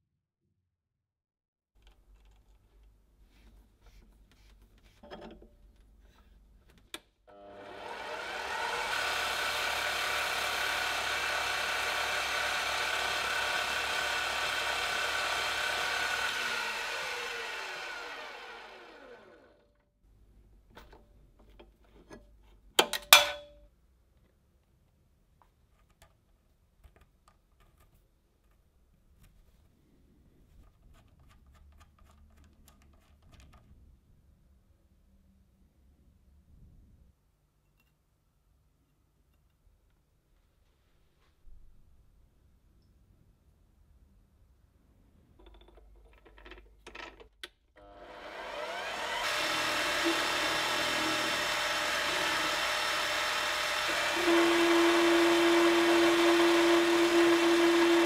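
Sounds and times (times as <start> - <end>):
lathe motor running: 7.3 - 19.6, 47.8 - 58.0
abrasive pad polishing: 7.6 - 19.5, 48.0 - 58.0.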